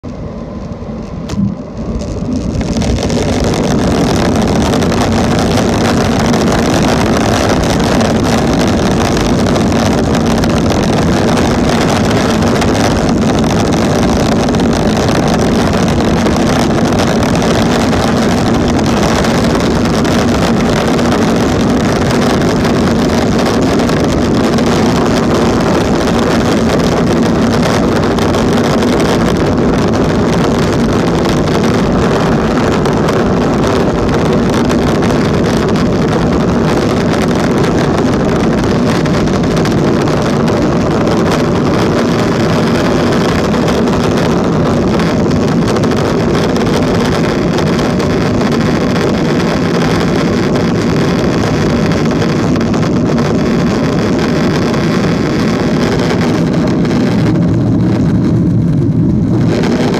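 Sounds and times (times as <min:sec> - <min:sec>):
constant cabin hum: 0:00.0 - 0:59.9
jet engines roaring: 0:00.0 - 0:59.9.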